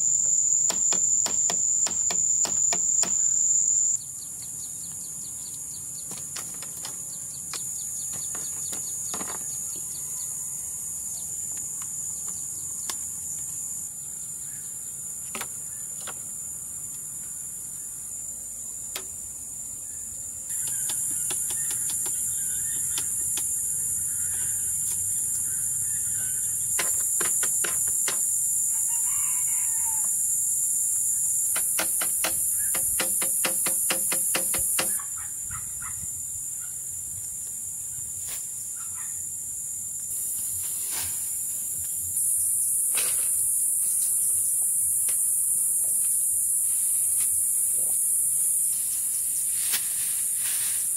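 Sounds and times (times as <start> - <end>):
insects droning: 0.0 - 50.9
bamboo poles knocking: 6.1 - 9.5, 20.6 - 23.5, 26.7 - 28.3, 31.5 - 35.0
rooster crowing: 28.7 - 30.2.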